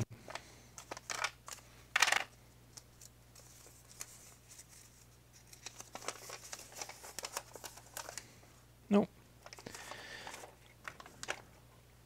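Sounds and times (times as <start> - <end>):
paper rustling: 0.3 - 1.6, 2.7 - 8.3, 9.4 - 11.5
plastic packaging crinkling: 0.3 - 8.3, 9.4 - 11.5.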